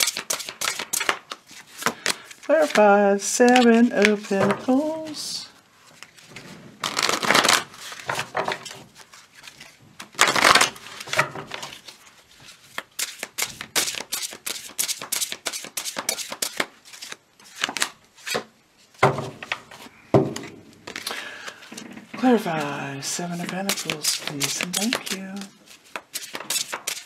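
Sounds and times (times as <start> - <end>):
cards sliding: 0.0 - 4.8, 5.9 - 18.5, 19.7 - 21.8, 22.4 - 27.0
crisp card flicks and taps: 23.4 - 27.0.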